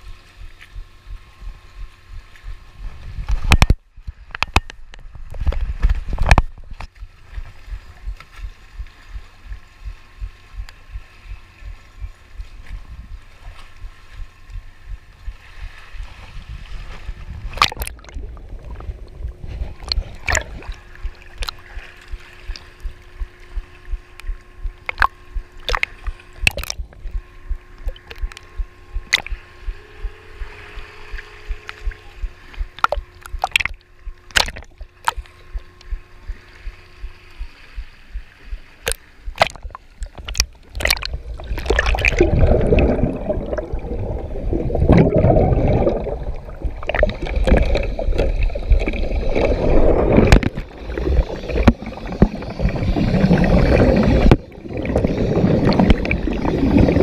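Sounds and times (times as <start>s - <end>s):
faint steady hum: 0.0s - 57.0s
water sloshing and gurgling: 0.0s - 57.0s
sharp clicks: 24.2s - 27.2s.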